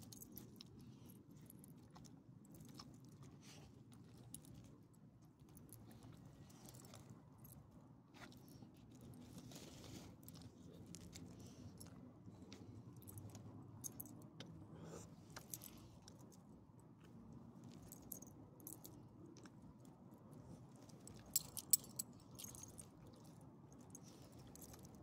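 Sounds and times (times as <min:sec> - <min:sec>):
dog collar tags jingling: 0:21.1 - 0:22.9.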